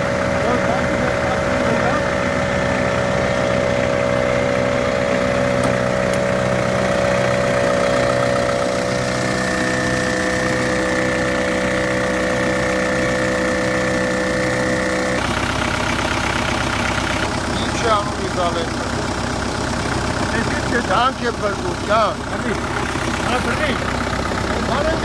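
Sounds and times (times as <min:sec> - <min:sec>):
steady whine: 0:00.0 - 0:15.4
engine idling: 0:00.0 - 0:25.0.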